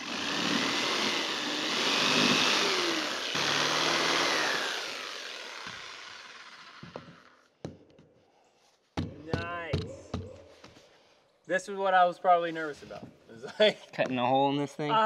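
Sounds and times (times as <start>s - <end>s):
jigsaw cutting plastic: 0.0s - 7.4s.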